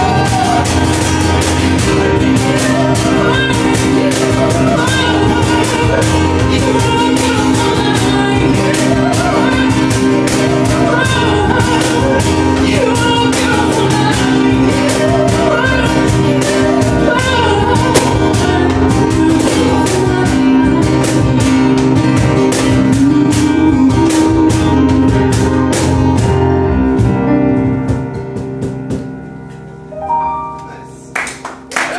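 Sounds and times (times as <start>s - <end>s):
woman singing: 0.0s - 26.0s
acoustic guitar: 0.0s - 31.9s
digital piano: 0.0s - 31.9s
cajon hand strikes: 17.8s - 18.5s, 27.7s - 29.6s.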